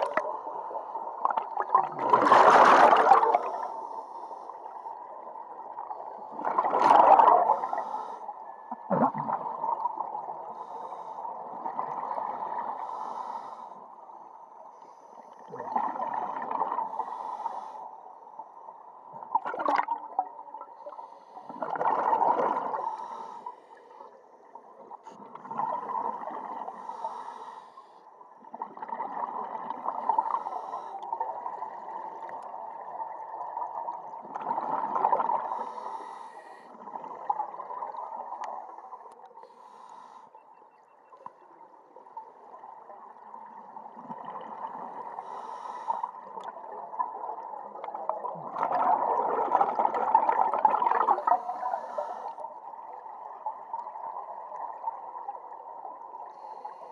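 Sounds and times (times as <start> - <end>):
exhaled bubbles bursting: 1.2 - 3.5, 6.3 - 7.6, 8.8 - 10.1, 19.2 - 20.4, 21.6 - 22.8, 46.6 - 51.4
diver breathing through regulator: 7.4 - 8.4, 12.8 - 13.8, 16.9 - 18.0, 22.7 - 24.1, 26.7 - 28.1, 30.2 - 31.1, 35.4 - 36.8, 39.4 - 40.4, 45.2 - 46.4, 51.2 - 52.4.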